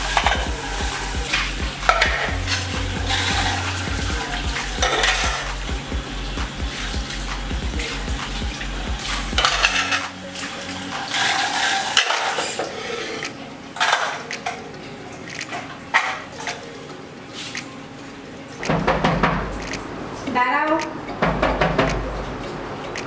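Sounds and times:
scrubbing dishes: 0.0s - 17.8s, 18.5s - 19.9s
dishes and pots clattering: 4.8s - 5.5s, 9.4s - 10.2s, 11.0s - 14.7s, 15.4s - 16.7s.

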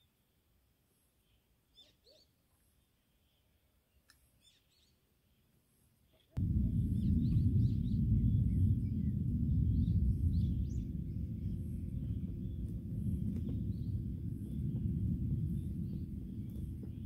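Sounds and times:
small birds chirping: 1.0s - 17.0s
steady low rumble: 6.4s - 17.0s.

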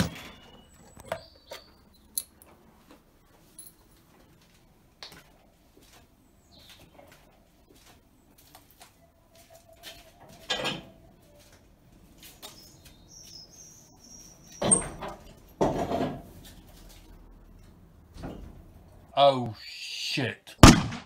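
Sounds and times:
garage door bang: 0.0s - 0.6s.

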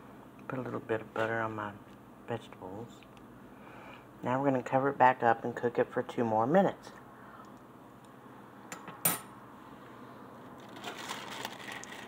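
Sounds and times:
plastic film crinkling: 10.6s - 12.0s.

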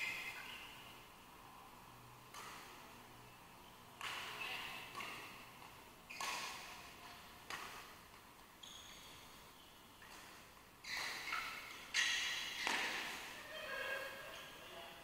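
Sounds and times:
racket striking shuttlecock: 2.2s - 3.0s, 4.0s - 8.2s, 10.0s - 13.4s
shoe squeaks: 6.1s - 6.8s, 8.6s - 10.2s, 10.8s - 13.7s.

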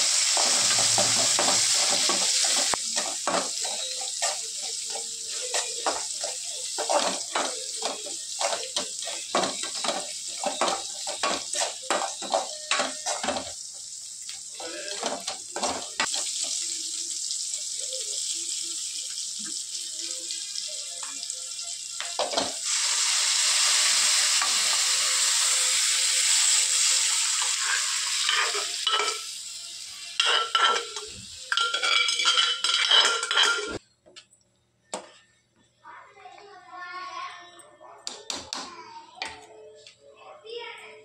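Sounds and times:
onions sizzling in hot oil: 0.0s - 33.8s
liquid poured into sizzling pan: 15.8s - 33.3s.

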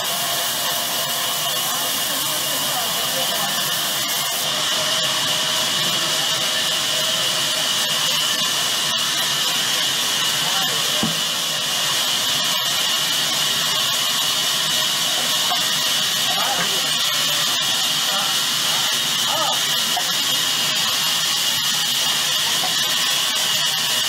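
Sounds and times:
band saw cutting through log: 0.0s - 24.0s.

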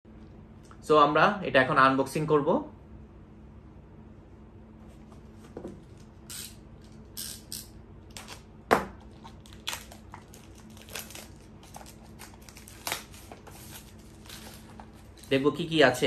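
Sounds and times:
plastic wrapping crinkling: 8.1s - 15.8s.

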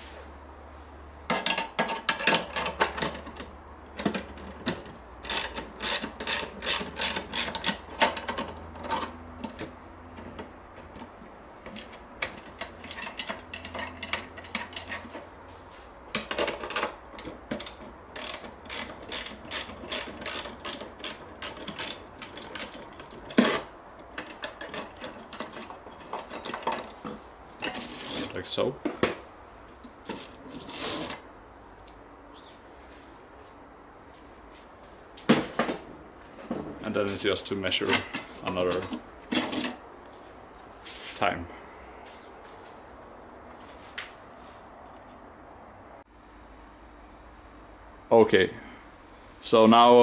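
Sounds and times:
ratchet wrench clicking: 5.2s - 8.3s, 17.6s - 23.0s.

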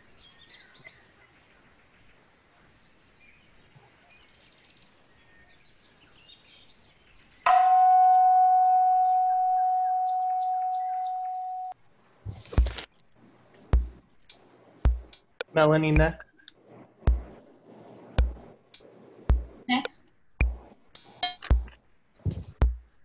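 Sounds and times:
faint chirps: 0.0s - 11.8s
short knocks: 13.8s - 14.0s, 17.1s - 17.3s.

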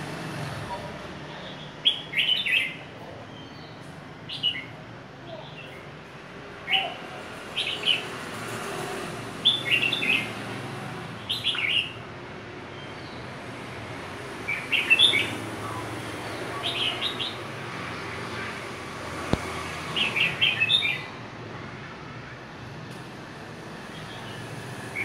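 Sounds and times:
bird singing warbled phrases: 0.6s - 5.9s, 6.6s - 8.2s, 9.4s - 10.4s, 11.2s - 12.1s, 14.4s - 18.6s, 19.8s - 21.2s.

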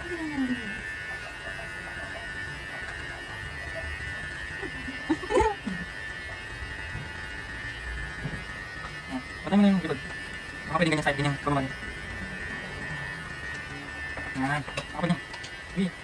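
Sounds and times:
electric hair clipper buzzing: 0.0s - 16.0s
person laughing: 4.6s - 6.0s.

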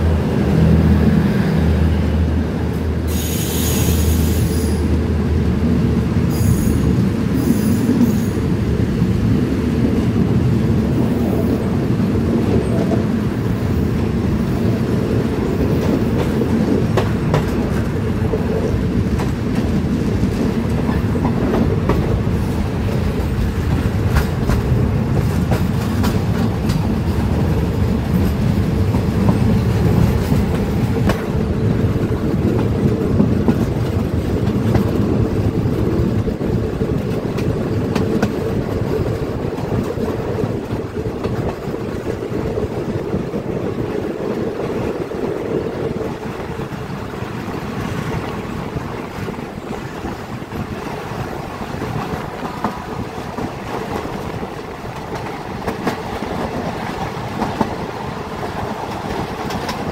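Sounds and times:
train wheels rumbling on rails: 0.0s - 59.9s
wheels clicking over rail joints: 12.3s - 59.9s.

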